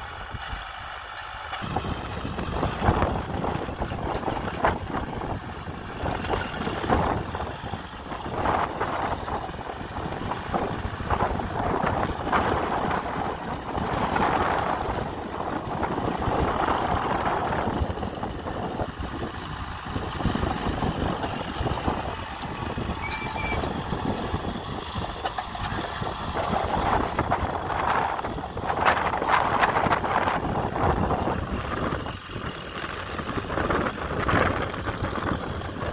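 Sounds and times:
tractor diesel engine running: 0.0s - 35.9s
wind noise on microphone: 1.6s - 35.9s.

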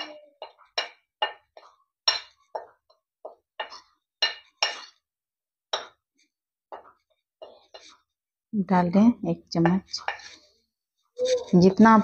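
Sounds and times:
spoon clinking and scraping plate: 0.4s - 2.8s, 3.6s - 5.0s, 9.7s - 10.5s.

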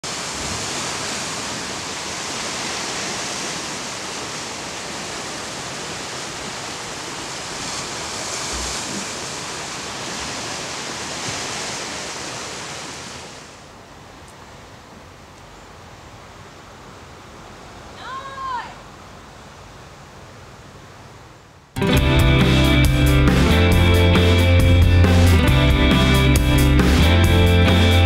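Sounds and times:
ocean surf on rocky shoreline: 0.0s - 15.2s, 16.6s - 21.0s.

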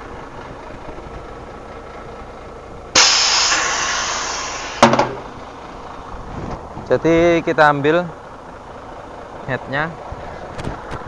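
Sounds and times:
sharp metallic knocks: 3.0s - 5.4s
compressed air hissing: 3.0s - 5.5s.

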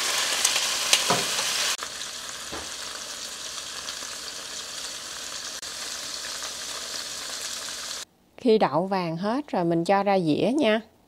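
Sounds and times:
tofu sizzling in hot oil: 0.0s - 8.1s.

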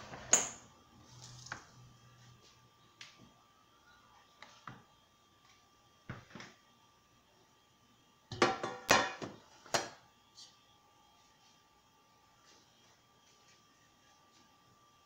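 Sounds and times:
kitchenware knocking on countertop: 8.3s - 9.3s.

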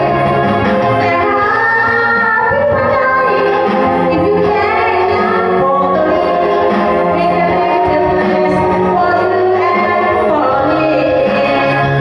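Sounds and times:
backing music: 0.0s - 12.0s
woman singing into microphone: 0.0s - 12.0s.

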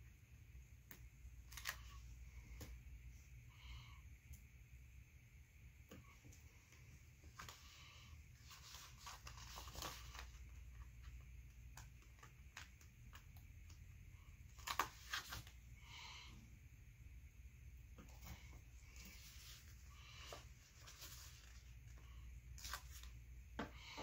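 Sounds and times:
low room hum: 0.0s - 24.0s
stickers peeling and rustling: 0.9s - 2.0s, 8.4s - 13.8s.

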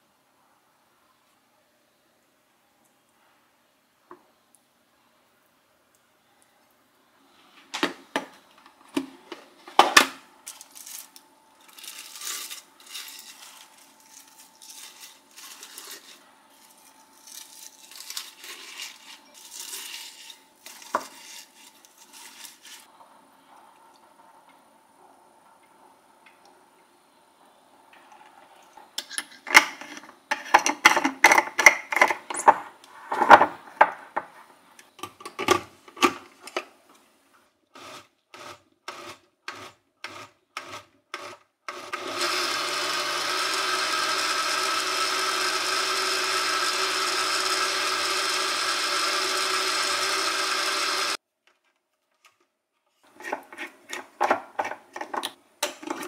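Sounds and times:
blender running: 37.8s - 51.2s.

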